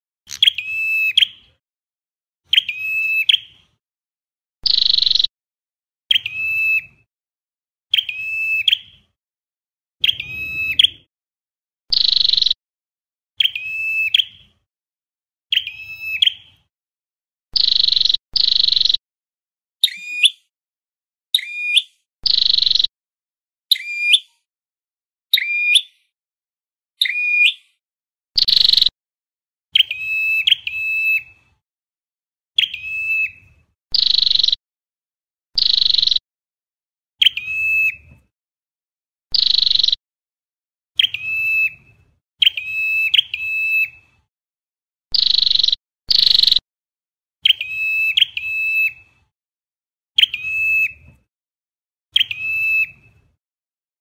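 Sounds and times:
bird calling sharp high notes: 0:10.0 - 0:11.1.

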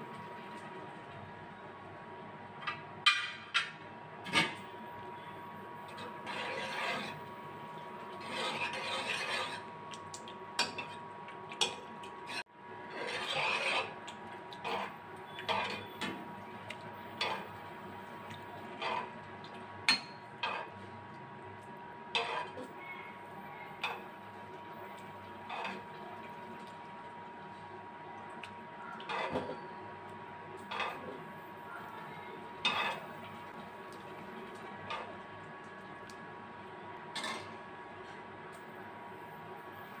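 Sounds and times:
metal ladle scraping a pan: 0:05.9 - 0:07.3, 0:08.0 - 0:09.7, 0:12.3 - 0:14.0, 0:14.6 - 0:16.1, 0:17.2 - 0:17.5, 0:22.2 - 0:22.7, 0:32.6 - 0:33.1.

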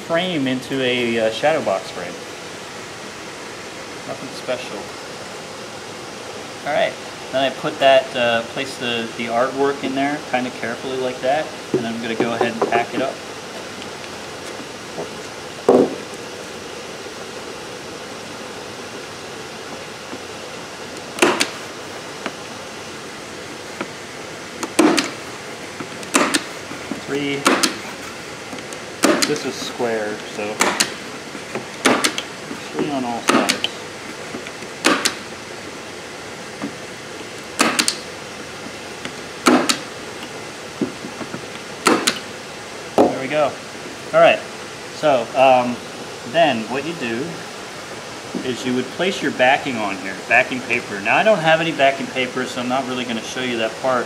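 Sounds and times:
point driver snapping: 0:24.6 - 0:25.2, 0:25.8 - 0:27.8, 0:28.5 - 0:29.5, 0:30.2 - 0:31.0, 0:31.6 - 0:32.3, 0:33.2 - 0:33.8, 0:34.4 - 0:35.3, 0:36.6 - 0:38.1, 0:39.0 - 0:42.3.

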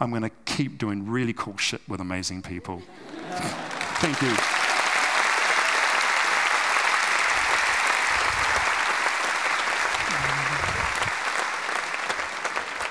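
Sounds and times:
audience applauding: 0:03.0 - 0:12.9.

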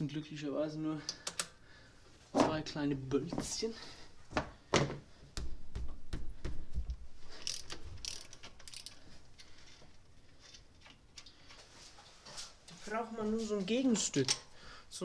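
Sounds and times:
socket ratchet clicking: 0:07.4 - 0:09.0.

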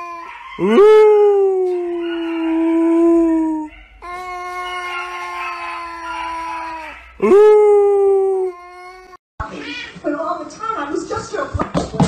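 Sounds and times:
cat yowling: 0:00.0 - 0:09.2.

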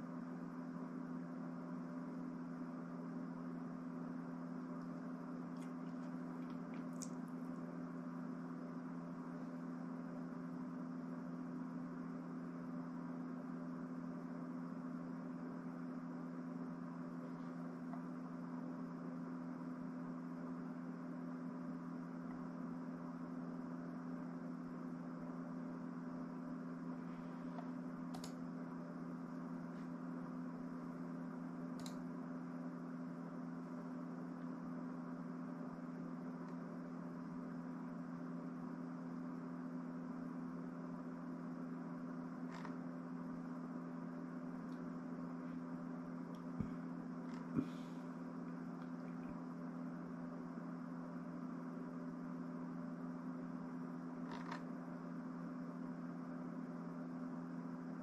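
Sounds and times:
low hum with hiss: 0:00.0 - 0:58.0.

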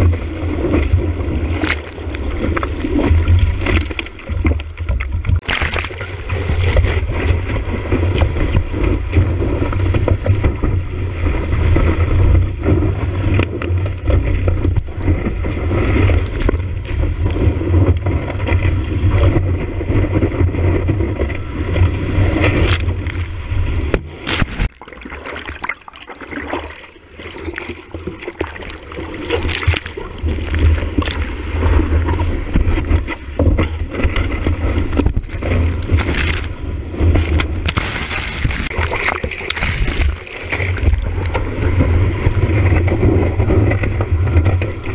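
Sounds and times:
water rushing along a surfboard: 0:00.0 - 0:44.9
sharp splash cracks: 0:05.4 - 0:07.0, 0:24.2 - 0:25.8.

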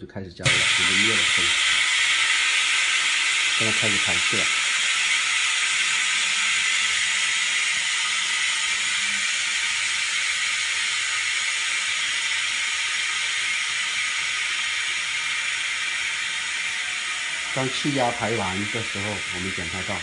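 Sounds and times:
compressed air venting hiss: 0:00.4 - 0:20.0.

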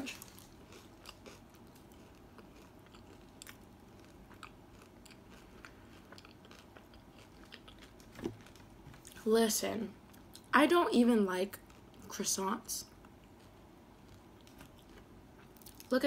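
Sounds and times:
chewing pastry: 0:00.0 - 0:09.2, 0:11.4 - 0:16.0
flaky pastry crackling: 0:00.0 - 0:09.3.

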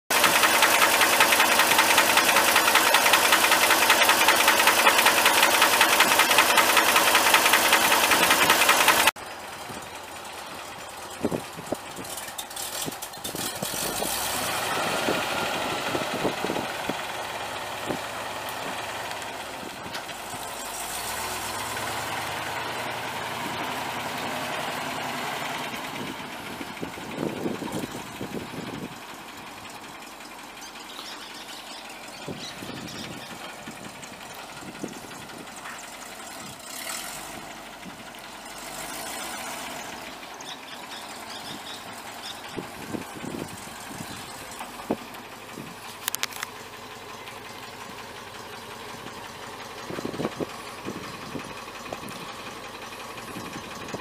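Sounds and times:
truck engine running: 0:00.1 - 0:54.0.

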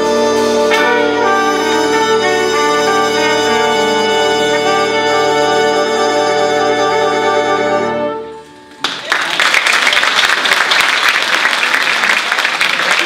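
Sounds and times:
jazz big band chord: 0:00.0 - 0:08.7
audience applause: 0:08.7 - 0:13.0.

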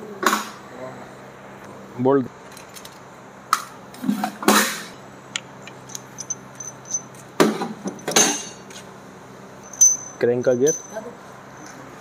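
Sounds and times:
metal tools clinking: 0:05.7 - 0:08.8, 0:09.6 - 0:11.9.

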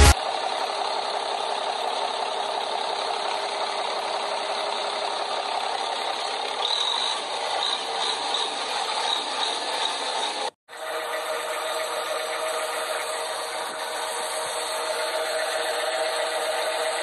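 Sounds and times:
machinery humming: 0:10.7 - 0:17.0.

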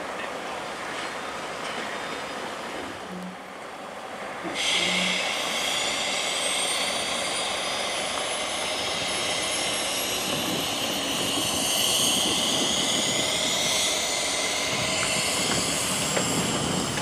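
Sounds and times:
engine whine: 0:00.0 - 0:17.0
even rushing noise: 0:04.6 - 0:17.0.

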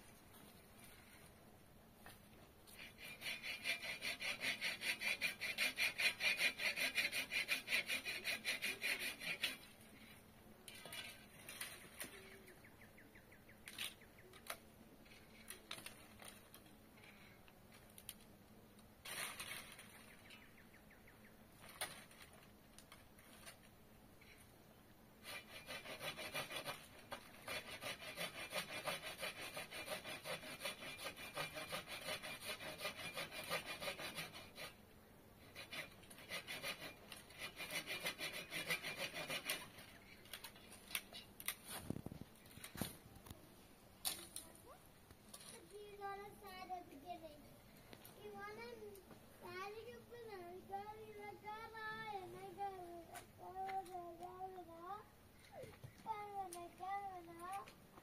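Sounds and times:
hand saw cutting wood: 0:02.7 - 0:09.8, 0:25.2 - 0:34.8, 0:35.4 - 0:41.9.

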